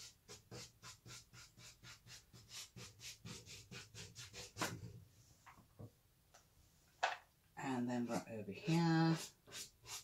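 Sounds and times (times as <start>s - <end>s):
pastel scratching on paper: 0.0s - 4.9s, 8.7s - 10.0s.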